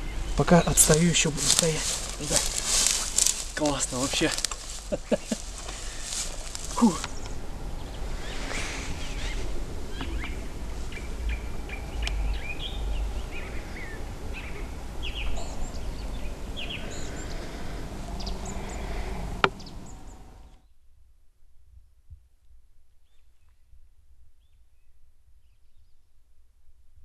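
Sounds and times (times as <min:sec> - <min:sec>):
low steady rumble: 0:00.0 - 0:20.6
small birds chirping: 0:00.0 - 0:20.6.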